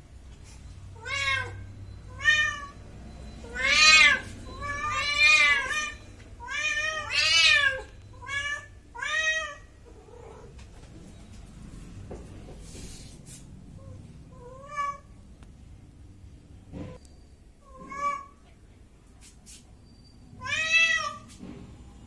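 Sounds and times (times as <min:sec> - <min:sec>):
cat meowing: 0:01.0 - 0:02.8, 0:03.4 - 0:10.5, 0:13.8 - 0:15.1, 0:20.4 - 0:21.3.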